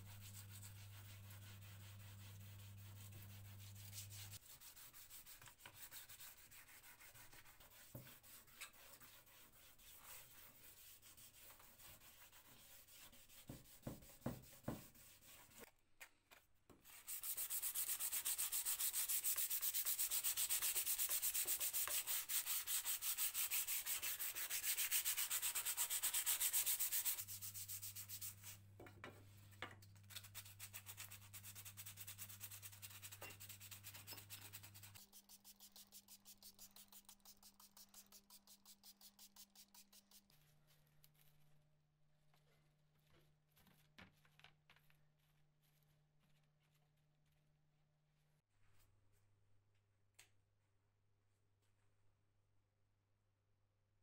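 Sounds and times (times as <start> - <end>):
sandpaper rubbing on plastic: 16.9 - 28.6, 30.1 - 40.4.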